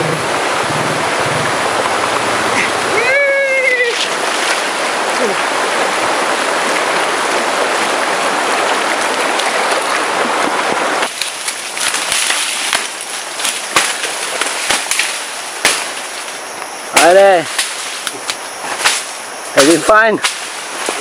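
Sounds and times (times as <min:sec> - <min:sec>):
stream rushing over rocks: 0:00.0 - 0:21.0.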